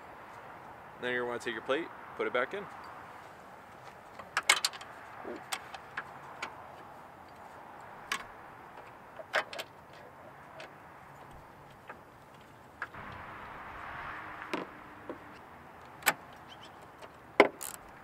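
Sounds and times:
faint steady hiss: 0:12.8 - 0:16.4.

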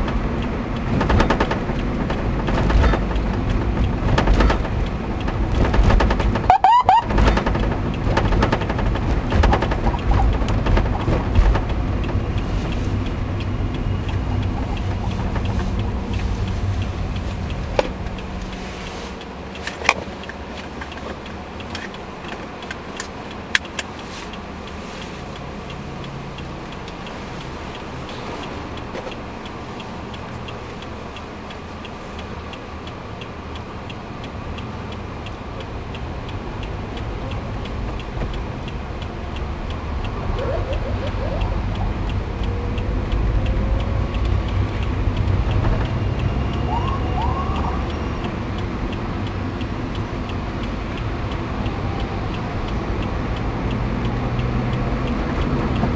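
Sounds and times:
car engine and road noise: 0:00.0 - 0:55.9
steady ticking: 0:00.0 - 0:55.9
siren whoops: 0:06.5 - 0:07.1, 0:46.4 - 0:48.2.

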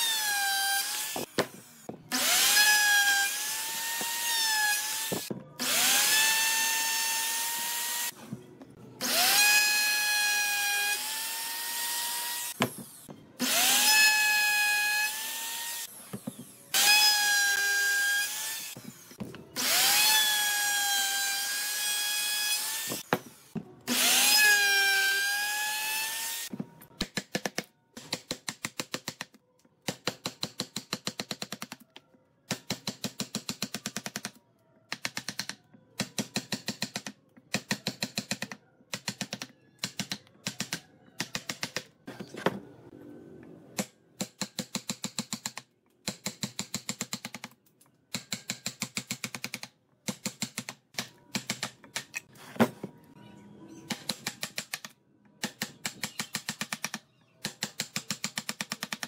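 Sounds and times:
electric drill boring into wood: 0:02.1 - 0:08.1, 0:13.4 - 0:15.9, 0:19.6 - 0:23.0, 0:23.9 - 0:26.5.

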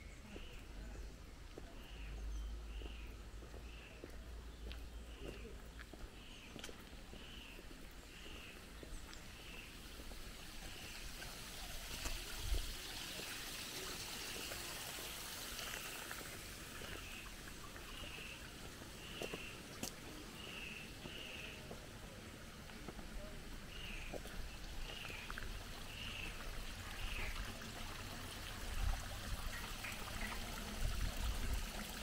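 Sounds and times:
stream water running: 0:00.0 - 0:32.0.

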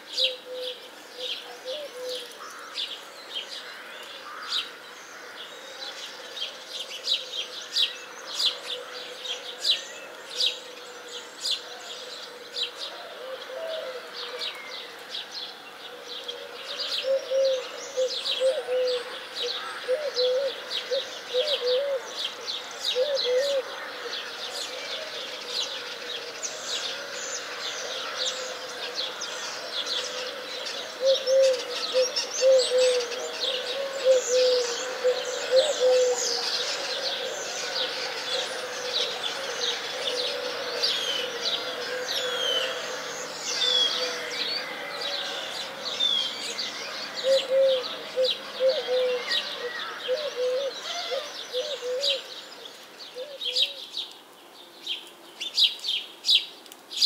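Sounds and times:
birds chirping and twittering: 0:00.0 - 0:57.0
low wavering bird call: 0:31.0 - 0:44.3, 0:47.2 - 0:52.3.

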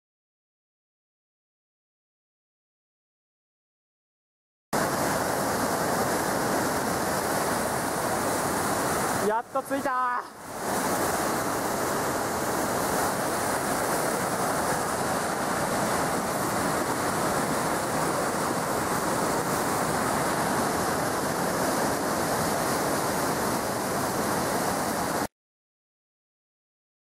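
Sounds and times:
stream rushing over rocks: 0:04.8 - 0:25.3.

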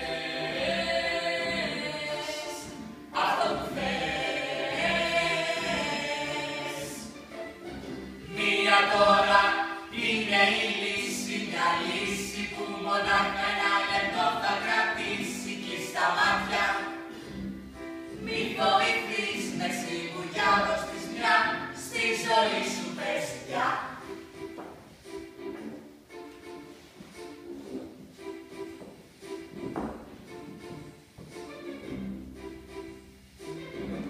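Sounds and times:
voices singing in chorus: 0:00.0 - 0:07.1, 0:08.2 - 0:17.2, 0:18.2 - 0:24.0.

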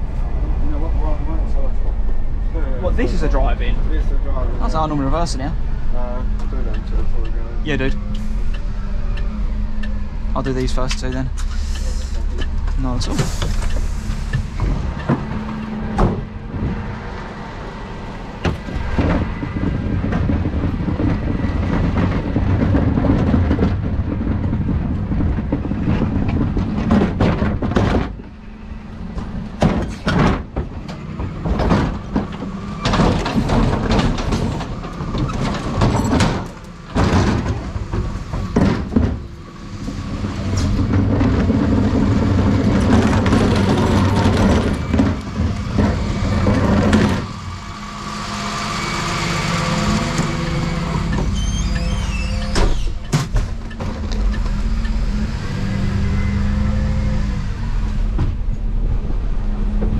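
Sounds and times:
diesel engine idling: 0:00.0 - 0:26.6, 0:36.5 - 0:59.9
wheelie bins knocking and rattling: 0:18.3 - 0:48.5, 0:49.1 - 0:54.8.

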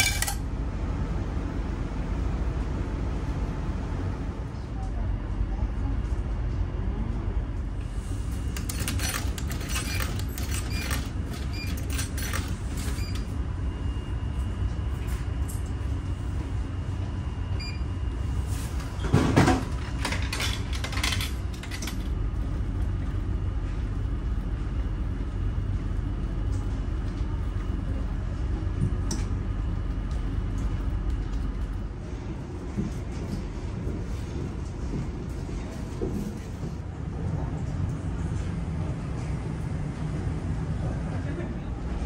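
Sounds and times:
coins clicking into machine: 0:00.0 - 0:00.4, 0:08.6 - 0:13.0, 0:20.0 - 0:22.1
ferry engines rumbling: 0:00.0 - 0:42.0.

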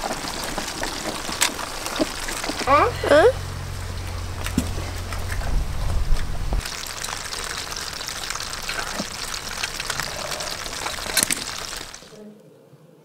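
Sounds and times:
crayfish shells clicking and scraping: 0:00.0 - 0:02.7, 0:06.6 - 0:12.1
low rumble: 0:01.9 - 0:12.0.

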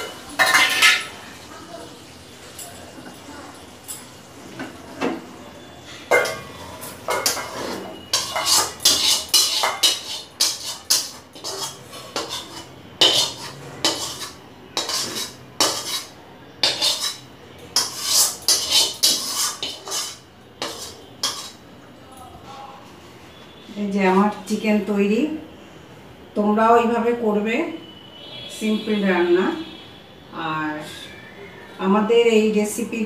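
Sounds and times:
metal spoon scraping metal pot: 0:00.0 - 0:01.1, 0:06.0 - 0:21.6.

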